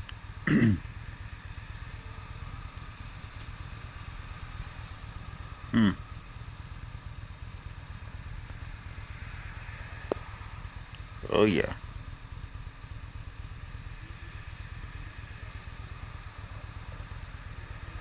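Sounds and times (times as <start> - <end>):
motorcycle engine idling: 0.0 - 18.0
short vocal sound: 0.5 - 0.8, 5.7 - 6.0.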